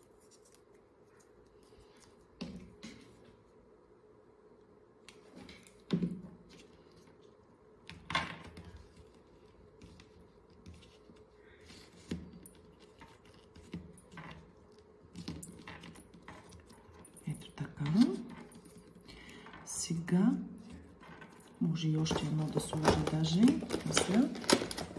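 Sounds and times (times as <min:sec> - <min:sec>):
soft taps and rustles of paper: 0:05.0 - 0:17.1.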